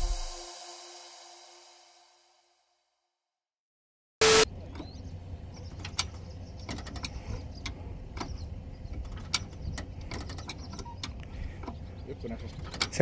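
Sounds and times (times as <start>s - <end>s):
metal mechanism clicks and knocks: 12.4s - 13.0s.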